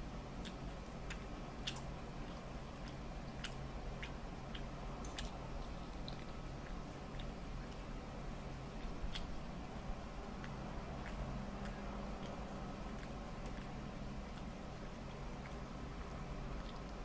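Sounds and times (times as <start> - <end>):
faint low hum: 0.0 - 17.0
chewing mouth clicks and smacks: 0.4 - 8.0, 8.7 - 17.0.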